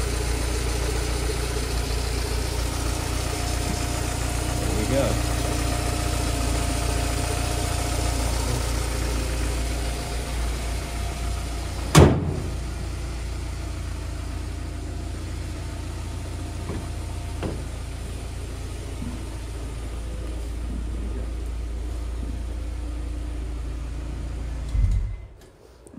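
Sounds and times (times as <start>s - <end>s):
car engine idling: 0.0s - 25.4s
loud thump: 11.8s - 12.6s, 16.6s - 17.7s, 24.8s - 25.3s.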